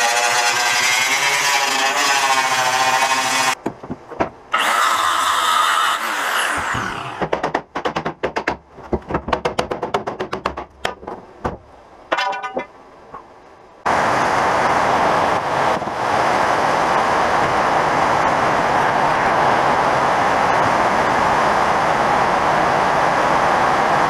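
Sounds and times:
angle grinder cutting: 0.0 - 3.6, 4.5 - 7.3
sharp knocks and clicks: 3.6 - 4.4, 7.2 - 13.3.

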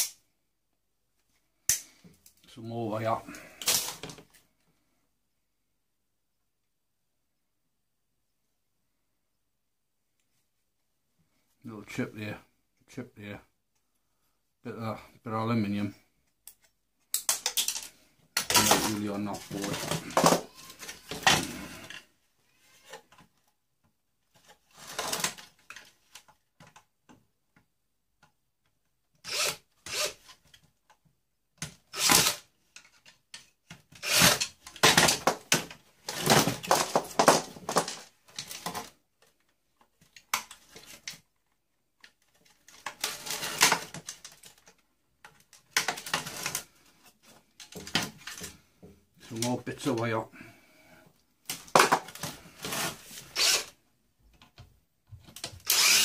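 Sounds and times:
ripping rubbing and clicking parts: 16.5 - 22.0, 31.6 - 38.9, 42.0 - 46.7.

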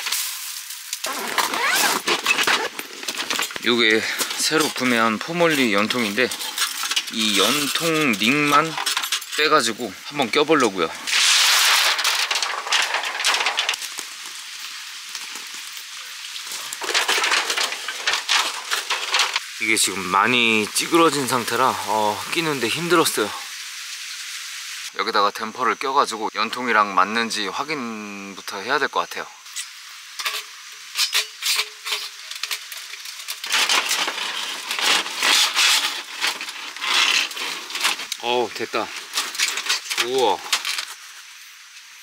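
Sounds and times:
thin sheet metal crinkling: 0.0 - 19.5, 29.6 - 41.2
metal-on-metal scraping: 1.1 - 9.7, 10.6 - 13.8, 16.6 - 19.4, 29.6 - 38.4.

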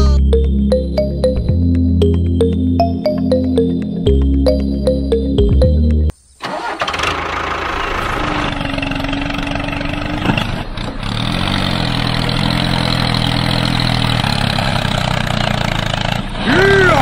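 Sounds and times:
tractor engine under load: 6.4 - 17.0
wheels spinning in mud: 6.4 - 17.0.

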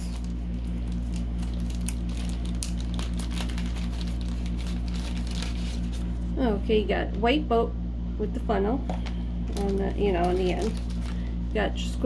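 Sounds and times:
plastic packaging crinkling: 0.0 - 6.2, 9.5 - 11.3
low electrical hum: 0.0 - 12.0.

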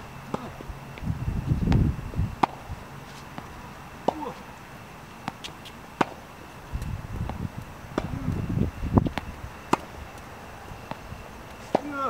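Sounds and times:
tennis ball struck by racket: 0.3 - 0.7, 1.7 - 4.4, 5.2 - 8.3, 9.0 - 10.2, 10.8 - 12.0
shoes scuffing on court: 0.3 - 12.0.

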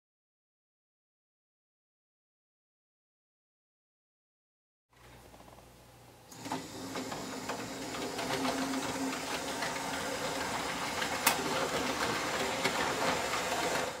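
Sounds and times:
electric motor hum: 6.3 - 14.0
wheels clicking over rail joints: 6.4 - 14.0.

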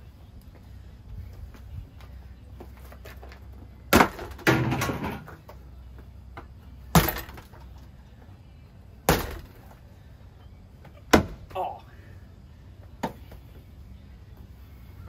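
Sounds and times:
fan blades smacking objects: 3.0 - 5.6, 6.9 - 7.8, 9.0 - 9.8, 10.9 - 11.6.

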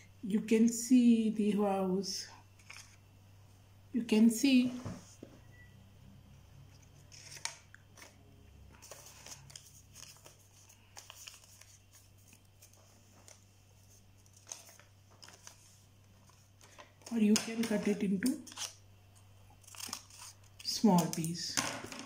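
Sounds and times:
low steady hum: 0.0 - 22.0
paper rustling and clicking: 14.2 - 15.6.

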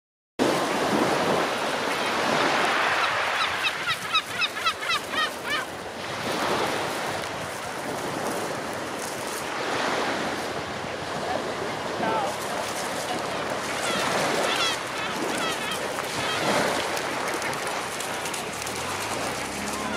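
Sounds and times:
surf on pebble beach: 0.4 - 19.9
bird giving rapid short calls: 13.8 - 16.8.

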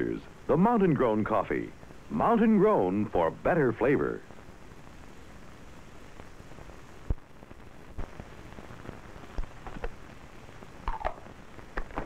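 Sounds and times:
film soundtrack hiss: 0.0 - 12.0
sharp clicks and pops: 9.3 - 10.0, 10.8 - 12.0.

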